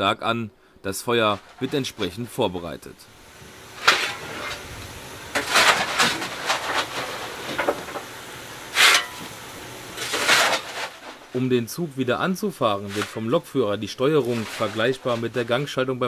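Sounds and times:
steam hissing: 3.0 - 11.6.

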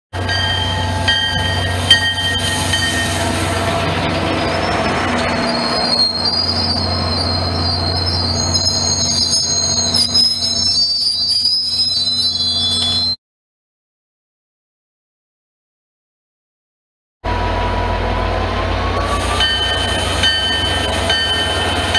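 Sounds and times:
diesel locomotive rumble: 0.1 - 13.1, 17.2 - 21.9
train coaches rolling past: 0.2 - 13.1, 17.3 - 21.9
wavering wheel squeal: 0.3 - 13.2, 18.8 - 21.9.

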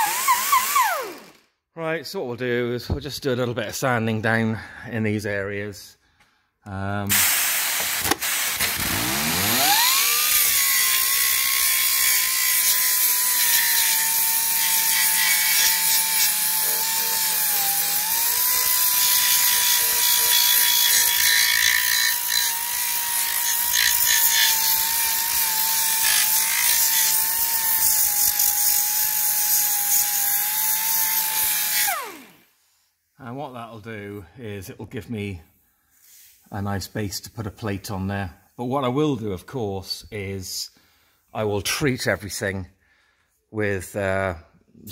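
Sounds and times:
belt sander whining: 0.0 - 1.5, 7.1 - 32.5
sander grinding rust off steel: 0.0 - 1.5, 7.1 - 32.6.

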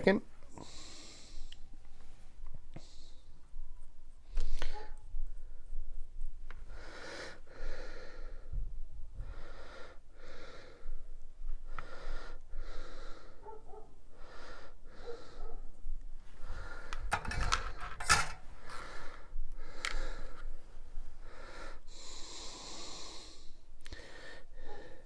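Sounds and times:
person breathing close: 0.4 - 3.5, 4.2 - 5.7, 6.6 - 25.0.

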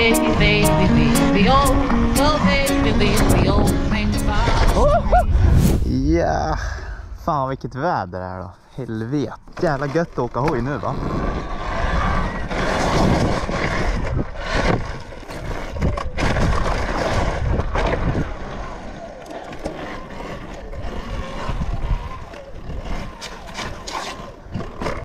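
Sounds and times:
tyres on asphalt and gravel: 0.0 - 5.9, 6.5 - 25.0
wind rushing over microphone: 0.0 - 8.5, 10.8 - 19.0, 20.7 - 23.2.

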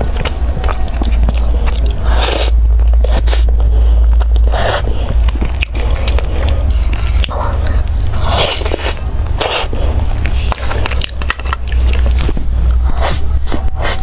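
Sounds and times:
biting and chewing pastry: 0.0 - 14.0
steady low hum: 0.0 - 14.0.

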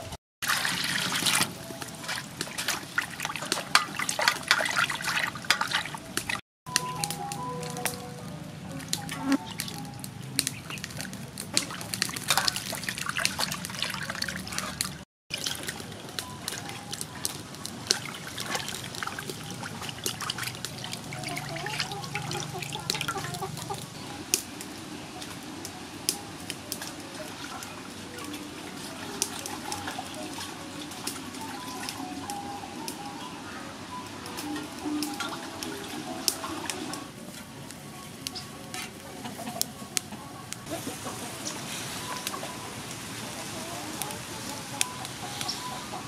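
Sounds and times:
water splashing and dripping: 0.0 - 33.3, 33.9 - 46.0
hands rubbing intestines in water: 0.5 - 6.4, 10.4 - 15.8.

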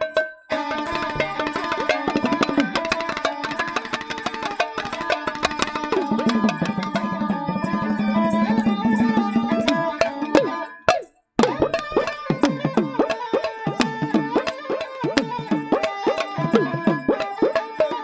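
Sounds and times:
hand drums: 0.0 - 18.0
bowed string melody: 5.9 - 10.8, 12.9 - 17.9.

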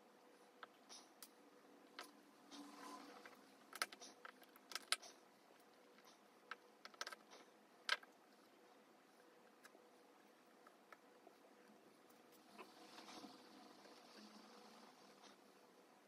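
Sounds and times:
plastic bricks clicking together: 3.7 - 5.0, 6.5 - 8.1.

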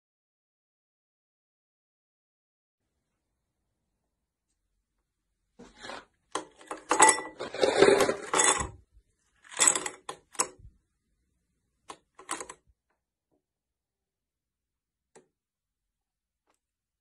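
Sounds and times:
ice cubes clinking into glass: 6.7 - 8.8.

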